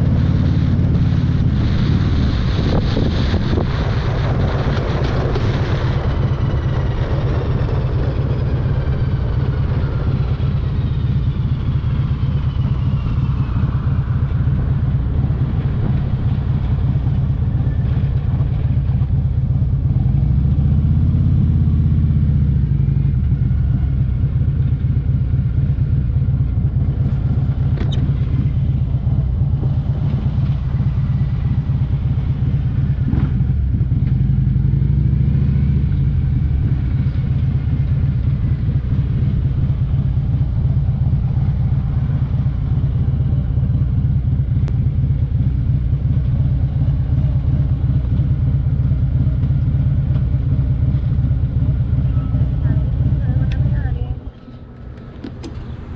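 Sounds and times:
wind noise: 0.0 - 20.1
motorcycle engine rumbling: 0.0 - 55.9.

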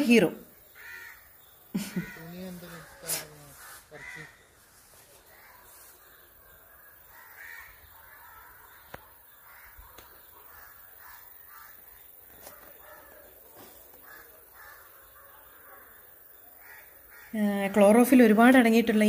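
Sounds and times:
faint crows cawing: 0.0 - 18.6.

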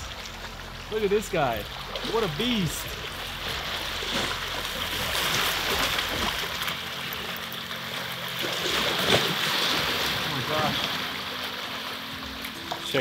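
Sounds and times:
surf washing on beach: 9.0 - 11.8.

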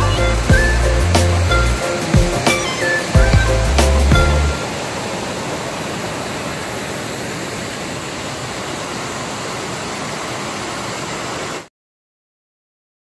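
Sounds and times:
waterfall rushing over rocks: 0.0 - 11.7.

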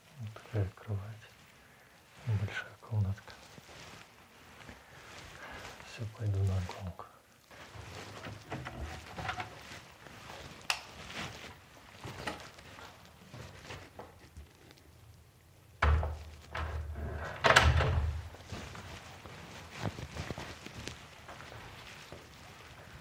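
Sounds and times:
faint clicks and rustles: 0.0 - 23.0
door shutting thump: 15.8 - 16.8
door opening thud: 15.8 - 18.3.

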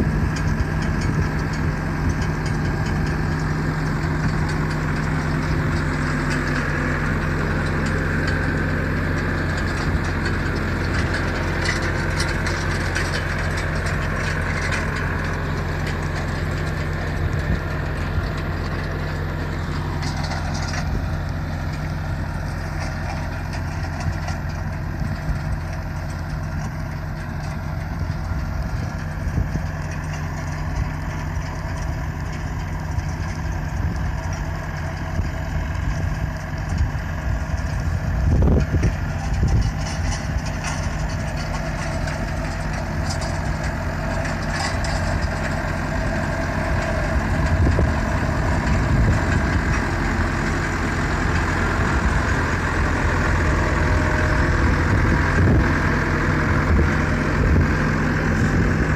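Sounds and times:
diesel engine running at low revs: 0.0 - 58.9.

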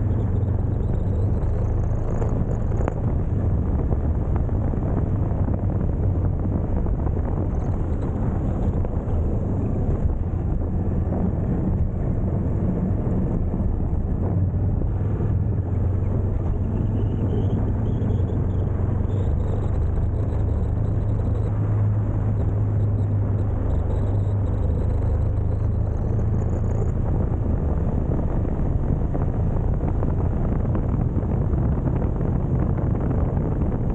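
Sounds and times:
motorcycle engine running: 0.0 - 11.3
wind and road noise: 0.0 - 33.9.

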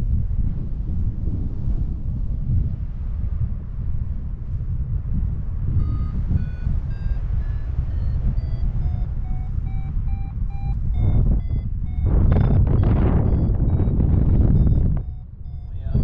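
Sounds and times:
wind rumble: 0.0 - 16.0
short electronic beeps: 5.8 - 16.0.

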